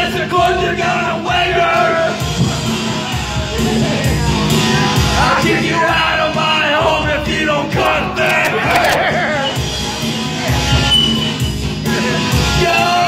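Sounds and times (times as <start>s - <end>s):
karaoke backing music: 0.0s - 13.0s.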